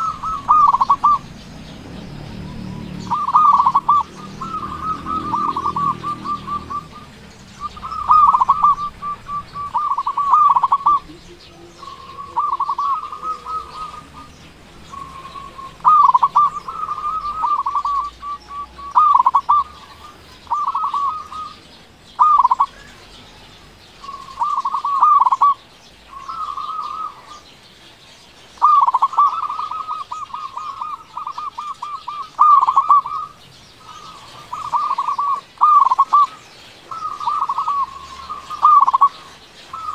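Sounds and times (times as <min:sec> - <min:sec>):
dove cooing: 0:00.0 - 0:27.6, 0:28.6 - 0:39.9.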